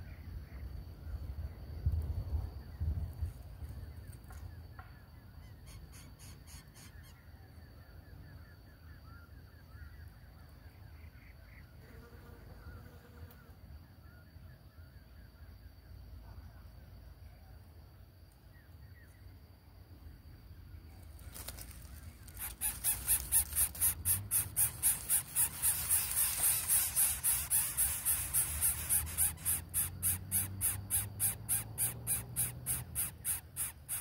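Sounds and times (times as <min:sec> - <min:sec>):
nestlings raspy begging calls: 0:22.2 - 0:34.0.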